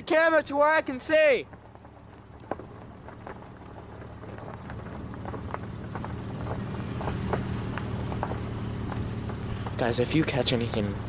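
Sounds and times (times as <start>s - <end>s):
footsteps crunching on snow: 1.5s - 10.0s.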